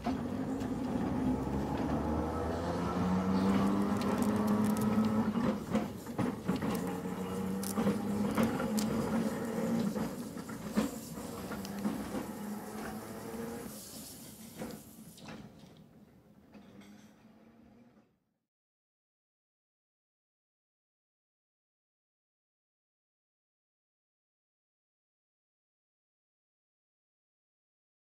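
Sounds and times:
electric tram motor hum: 0:00.0 - 0:14.8
wheels clicking on track: 0:00.0 - 0:15.0.

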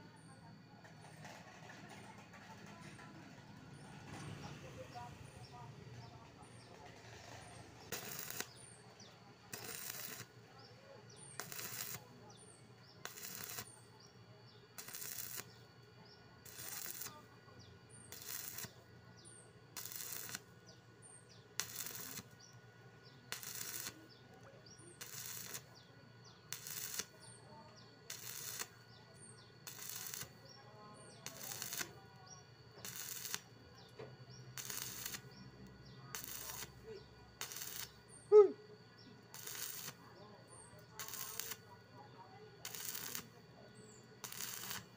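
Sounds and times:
welding arc crackling: 0:05.4 - 0:15.7, 0:16.4 - 0:17.4, 0:18.0 - 0:18.9, 0:19.7 - 0:38.4, 0:39.2 - 0:40.0, 0:40.8 - 0:41.8, 0:42.6 - 0:43.4, 0:44.0 - 0:44.9.

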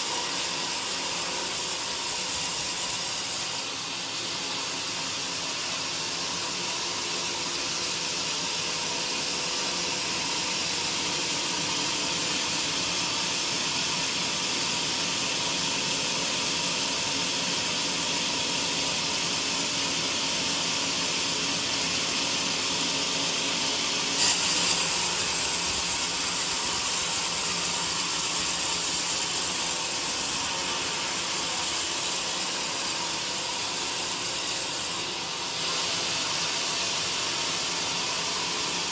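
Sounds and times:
band saw cutting timber: 0:00.0 - 0:06.4, 0:24.0 - 0:38.9.

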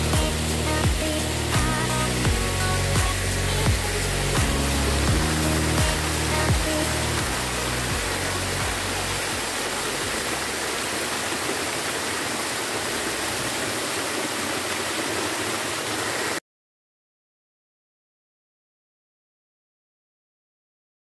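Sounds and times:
waterfall rushing: 0:00.0 - 0:16.4.

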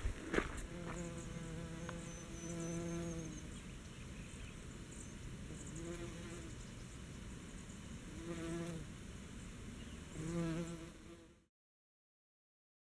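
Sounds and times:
bee buzzing in flight: 0:00.1 - 0:03.5, 0:05.6 - 0:06.5, 0:08.1 - 0:08.9, 0:10.1 - 0:11.5.

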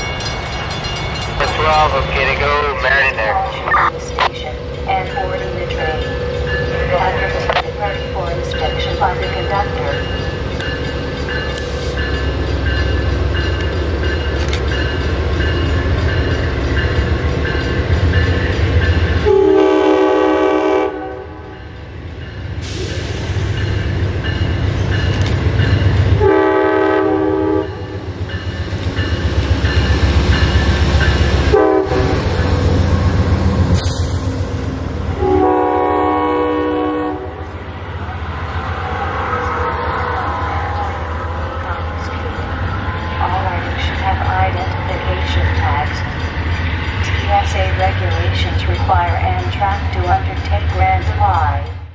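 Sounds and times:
diesel locomotive rumbling: 0:00.0 - 0:51.9
train horn blasts: 0:19.2 - 0:21.5, 0:26.2 - 0:28.1, 0:31.5 - 0:32.3, 0:35.1 - 0:37.6.

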